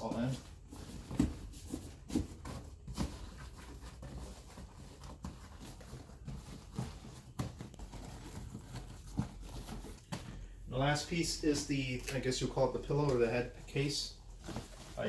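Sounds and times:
cloth rustling: 11.5 - 15.0.

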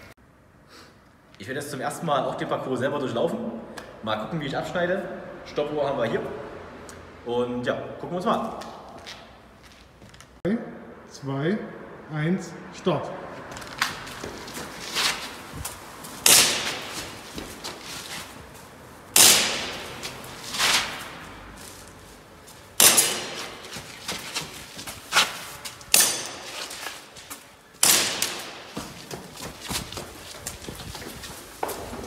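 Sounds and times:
footsteps: 8.4 - 10.4, 13.3 - 32.0
airsoft pistol shots: 16.2 - 17.0, 19.2 - 20.0, 22.8 - 23.7, 25.9 - 26.5, 27.8 - 28.8.

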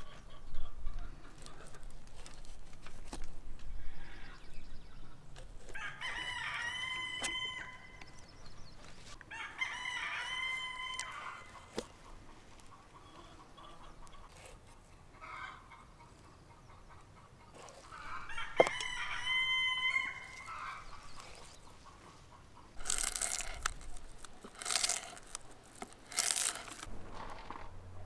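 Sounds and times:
knife crunching through dry nori: 1.4 - 3.4, 19.9 - 21.8, 22.8 - 26.9
rooster crowing: 5.8 - 8.0, 9.3 - 11.5, 18.0 - 20.8.

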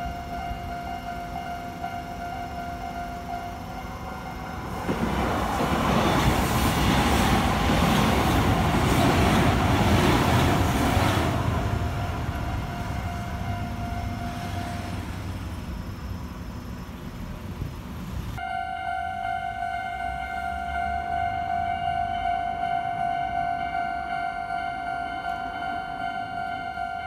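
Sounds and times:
level crossing alarm ringing: 0.0 - 5.0, 11.6 - 15.2, 18.4 - 27.0
train wheel and motor rumble: 0.0 - 18.5.

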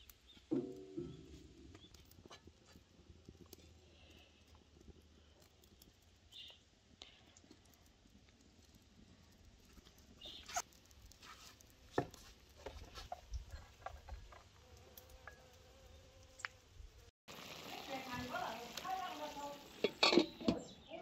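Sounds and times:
metal lid clinking on pan: 19.8 - 20.6.

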